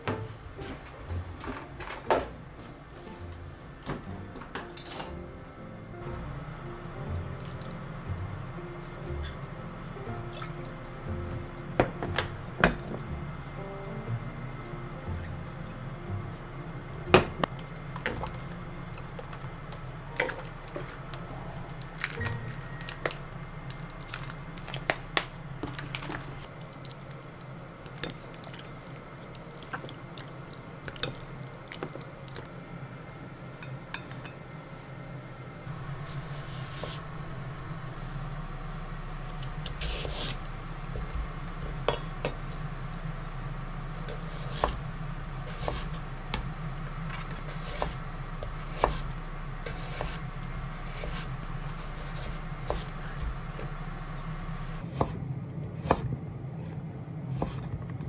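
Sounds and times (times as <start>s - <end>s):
steady low hum: 0.0s - 58.0s
wet squishing of meat mixing: 17.5s - 33.3s.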